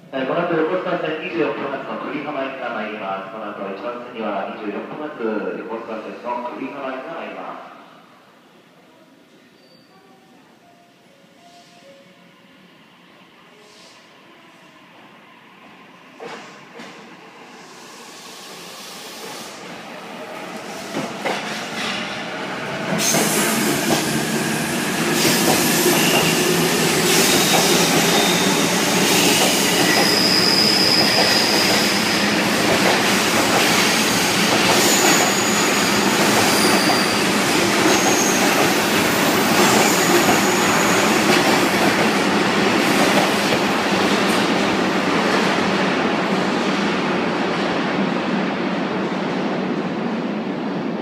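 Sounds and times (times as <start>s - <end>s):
train wheels rolling: 20.4s - 45.4s
high wheel squeals: 26.0s - 32.0s, 37.9s - 38.5s.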